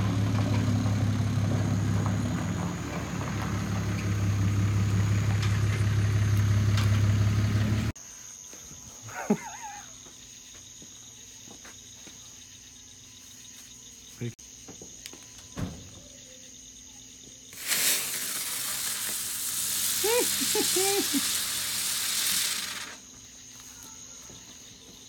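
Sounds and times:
truck engine idling: 0.0 - 8.0
crickets chirping: 7.9 - 25.0.

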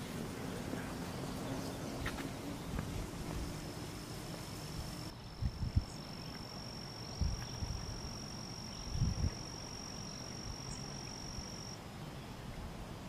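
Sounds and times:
wind buffeting microphone: 1.6 - 6.4, 7.1 - 8.1, 8.8 - 9.5
high-pitched buzz: 2.9 - 11.8.

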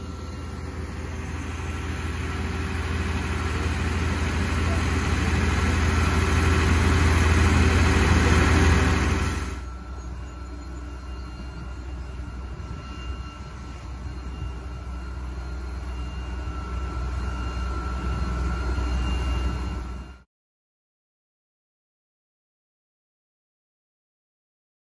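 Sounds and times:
portable water pump engine running: 0.0 - 10.6
distant fire engines pumping: 0.0 - 20.2.

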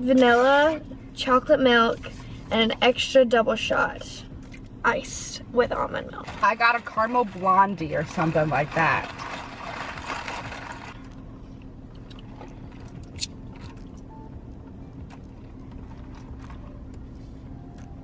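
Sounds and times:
car cabin hum: 0.0 - 18.0.

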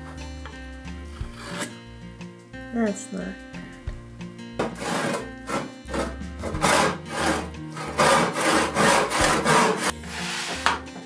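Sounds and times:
handsaw cutting wood: 4.6 - 10.8.

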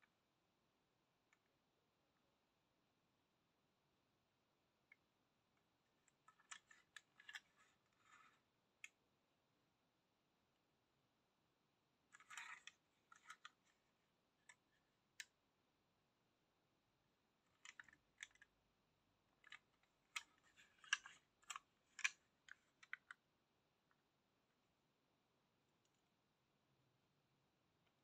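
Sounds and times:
toy bus clicking and rubbing: 6.3 - 8.4, 12.2 - 13.7, 19.4 - 23.2.

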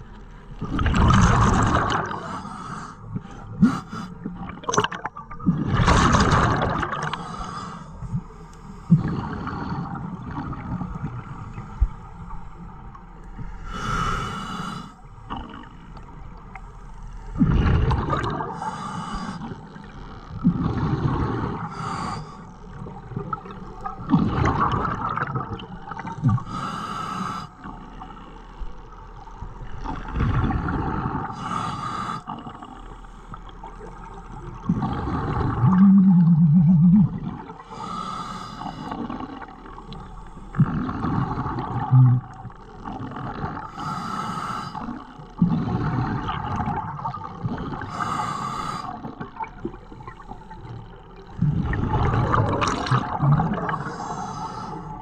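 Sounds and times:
exhaled bubbles gurgling: 0.6 - 2.5, 3.1 - 7.4, 8.9 - 11.9, 17.3 - 26.7, 28.9 - 31.5, 32.3 - 55.0
regulator hissing inhale: 2.2 - 4.3, 7.2 - 9.8, 13.4 - 15.1, 18.6 - 19.7, 21.4 - 22.7, 26.4 - 27.6, 31.2 - 33.9, 37.6 - 39.0, 43.7 - 45.2, 47.7 - 49.2, 53.8 - 55.0.

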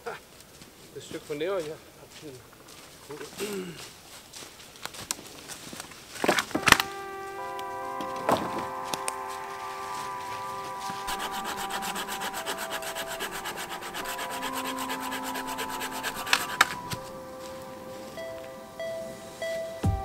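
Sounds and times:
wood cracking: 4.8 - 7.1
hand saw cutting branch: 10.2 - 17.1.

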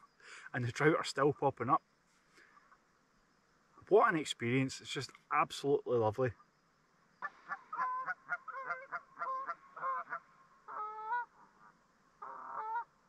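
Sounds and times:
geese honking: 7.2 - 12.9.

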